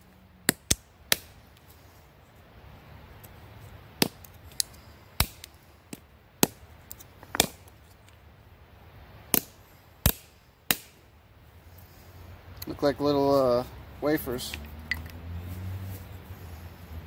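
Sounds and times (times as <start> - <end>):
axe chopping wood: 0.4 - 1.4, 4.0 - 4.3, 5.2 - 6.6, 7.2 - 7.7, 9.3 - 11.0.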